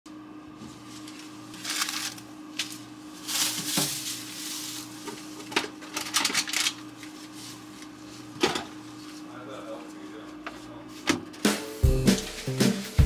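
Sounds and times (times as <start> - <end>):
plastic packaging crinkling: 1.0 - 7.8.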